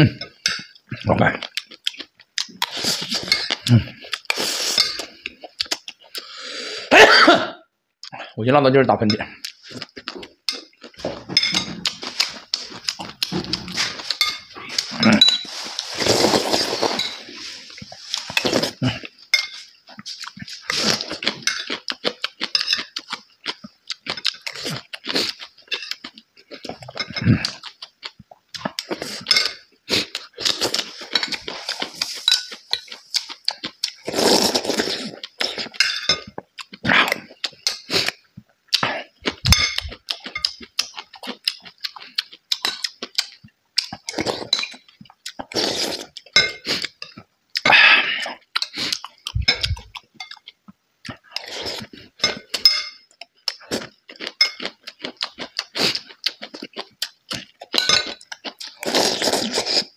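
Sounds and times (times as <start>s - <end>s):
person chewing and smacking: 0.0s - 6.3s, 9.3s - 59.9s
metal spoon scraping ceramic plate: 13.4s - 17.4s.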